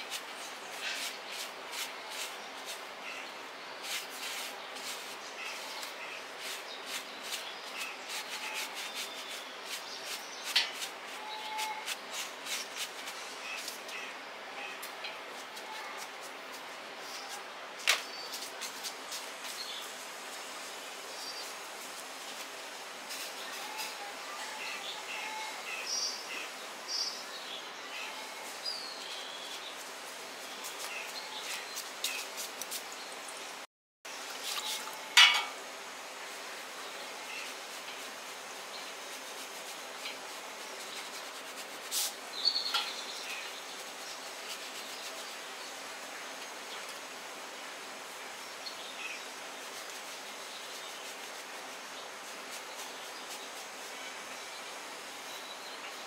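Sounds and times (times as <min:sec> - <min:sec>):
brush rasping through fur: 0:00.0 - 0:03.0, 0:03.8 - 0:13.9, 0:37.2 - 0:45.5, 0:49.3 - 0:54.1
small birds chirping: 0:00.0 - 0:20.1, 0:23.1 - 0:33.5, 0:36.8 - 0:47.0, 0:48.3 - 0:56.0
outdoor background noise: 0:00.0 - 0:56.0.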